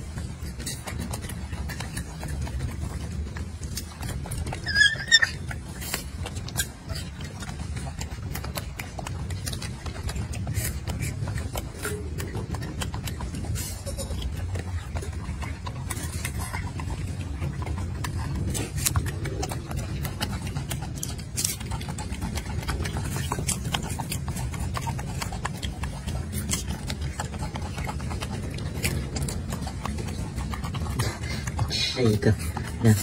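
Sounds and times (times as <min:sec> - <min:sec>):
monkey chewing fruit: 0:00.0 - 0:33.0
steady low rumble: 0:05.3 - 0:33.0.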